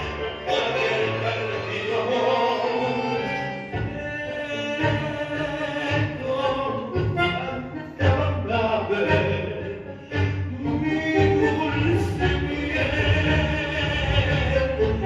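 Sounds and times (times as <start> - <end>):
person singing: 0.0 - 15.0
tango orchestra music: 0.0 - 15.0.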